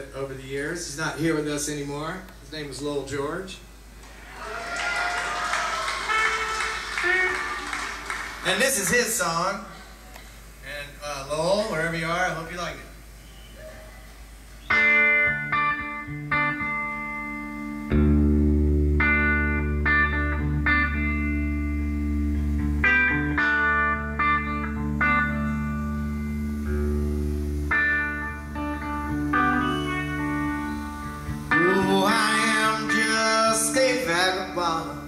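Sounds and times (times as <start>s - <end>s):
bass line: 14.7s - 35.0s
plucked guitar notes: 14.7s - 35.0s.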